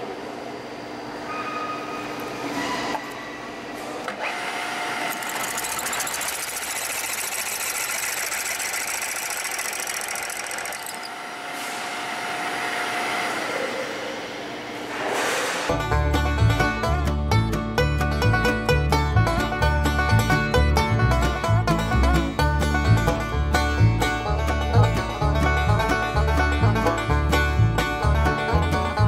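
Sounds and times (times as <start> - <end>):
drill motor humming: 4.3 - 11.4
drill bit cutting into steel: 5.0 - 11.3.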